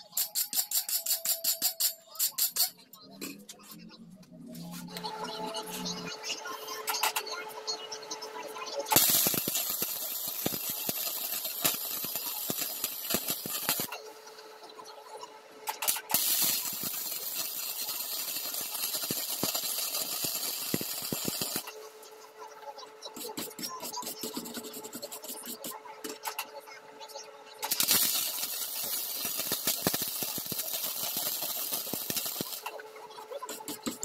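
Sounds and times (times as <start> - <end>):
clicks and scrapes on metal: 0.0 - 3.8
welding arc crackling hiss: 8.9 - 14.0, 15.9 - 21.7, 27.7 - 32.8.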